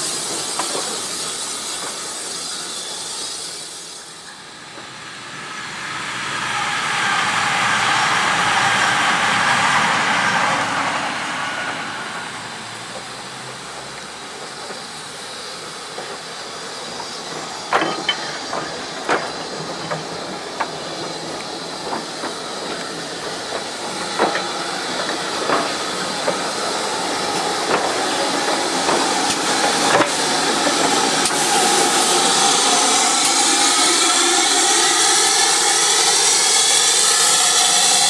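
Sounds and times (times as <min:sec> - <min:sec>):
train wheels clicking over joints: 0:00.0 - 0:04.0, 0:12.7 - 0:38.0
steam hiss: 0:00.0 - 0:38.0.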